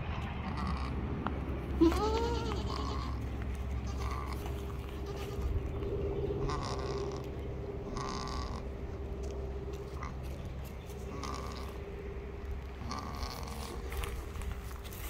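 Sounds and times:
goat bleating: 0:00.4 - 0:01.0, 0:01.8 - 0:05.7, 0:06.4 - 0:08.7, 0:11.1 - 0:11.8.

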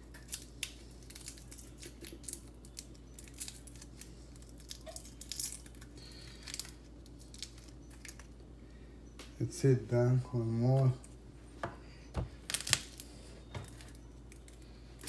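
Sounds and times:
garlic skin crackling: 0:00.0 - 0:08.5, 0:12.4 - 0:15.0.

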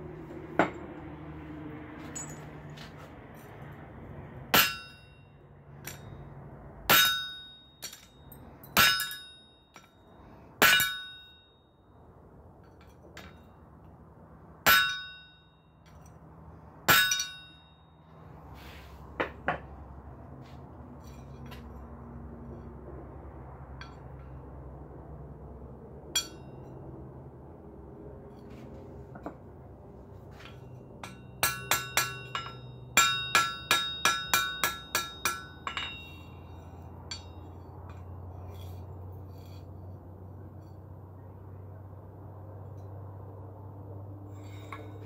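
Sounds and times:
hammer striking metal on anvil: 0:00.6 - 0:01.0, 0:04.5 - 0:10.0, 0:10.6 - 0:11.6, 0:14.6 - 0:16.2, 0:16.8 - 0:18.1, 0:26.1 - 0:26.8, 0:30.3 - 0:38.1.

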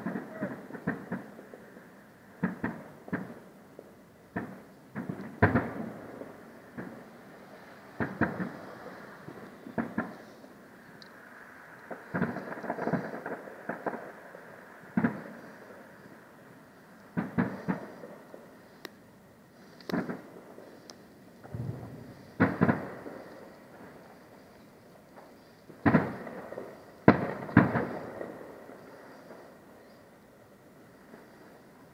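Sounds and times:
distant firework booms: 0:02.4 - 0:03.5, 0:04.3 - 0:10.6, 0:11.9 - 0:14.2, 0:14.9 - 0:15.7, 0:17.1 - 0:18.2, 0:19.9 - 0:20.8, 0:21.4 - 0:24.4, 0:25.7 - 0:29.5.

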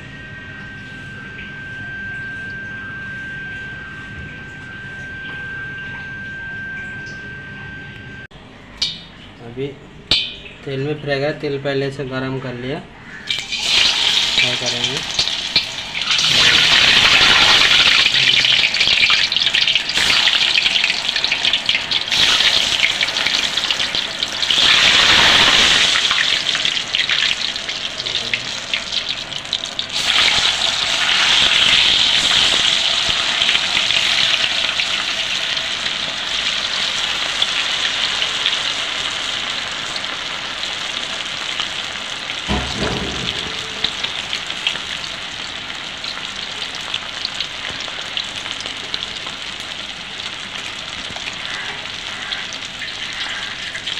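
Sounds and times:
oil sizzling in a wok: 0:13.1 - 0:53.9
low knock: 0:42.5 - 0:44.5.

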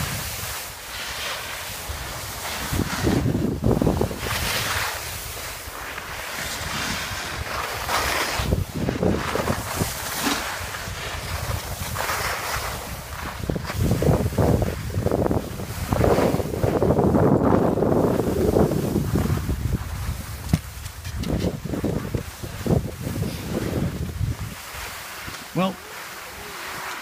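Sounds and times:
wind buffeting microphone: 0:00.0 - 0:00.8, 0:01.6 - 0:27.0
skis scraping over snow: 0:00.0 - 0:27.0.

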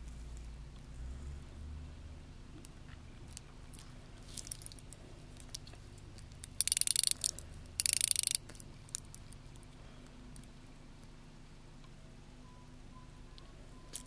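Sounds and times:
watch bezel ratcheting clicks: 0:06.4 - 0:09.2.

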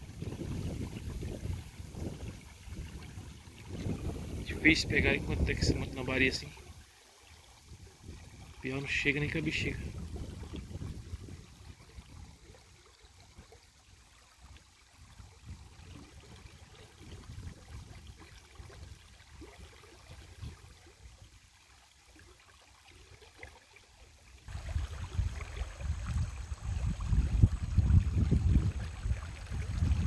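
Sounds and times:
wind rumble on microphone: 0:00.0 - 0:06.7, 0:07.6 - 0:13.5, 0:15.0 - 0:21.2, 0:24.5 - 0:30.0
river water flowing: 0:00.0 - 0:30.0.

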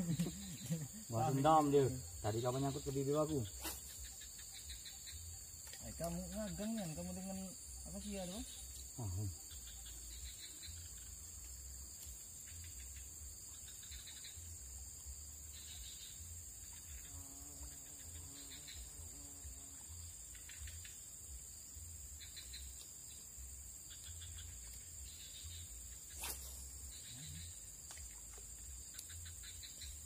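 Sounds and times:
insects chirping: 0:00.0 - 0:30.0
insects droning: 0:00.0 - 0:30.0.

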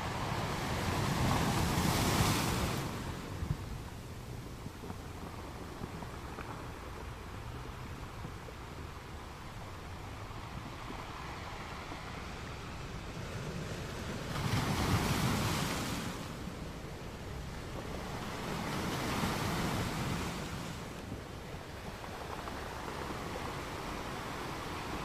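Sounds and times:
waves on open water: 0:00.0 - 0:25.0
wind: 0:00.0 - 0:25.0.

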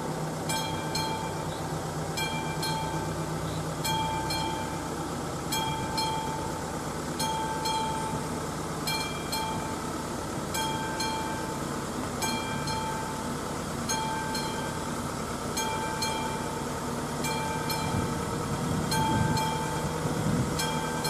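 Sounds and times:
level crossing bell ringing: 0:00.5 - 0:01.5, 0:02.2 - 0:03.2, 0:03.8 - 0:04.9, 0:05.5 - 0:06.6, 0:07.2 - 0:08.3, 0:08.9 - 0:09.9, 0:10.5 - 0:18.2, 0:18.9 - 0:20.0, 0:20.6 - 0:21.0.

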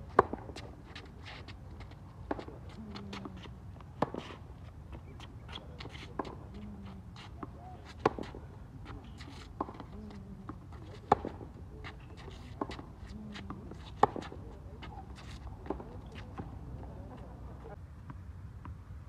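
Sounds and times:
racket hitting tennis ball: 0:00.1 - 0:04.7, 0:05.5 - 0:16.9.

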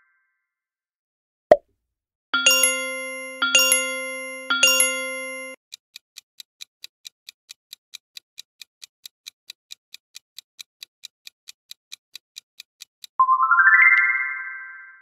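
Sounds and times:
chime: 0:02.4 - 0:05.6, 0:13.2 - 0:15.0
countdown timer ticking: 0:02.4 - 0:05.6.

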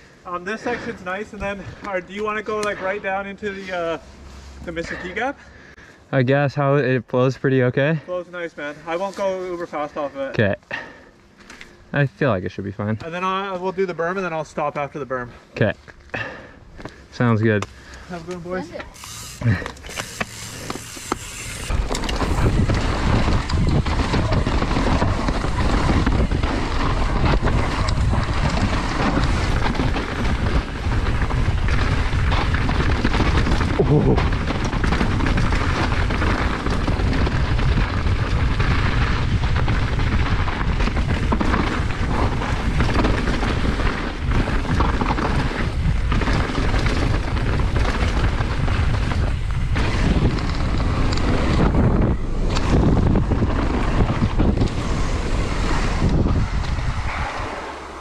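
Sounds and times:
tyres rumbling on loose dirt: 0:12.0 - 0:58.0
bike shaking over ground: 0:18.9 - 0:57.1
wind buffeting microphone: 0:20.3 - 0:58.0.

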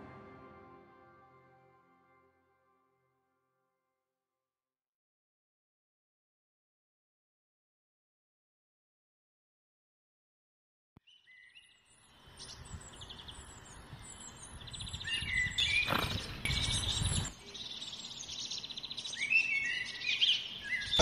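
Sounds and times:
small birds chirping: 0:11.0 - 0:21.0.

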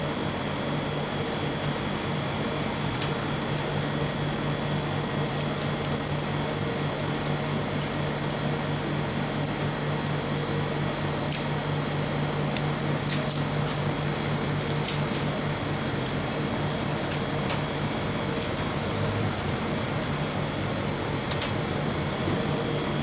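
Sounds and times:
steady low hum: 0:00.0 - 0:23.0
plastic wrapper crinkling: 0:03.1 - 0:15.4.

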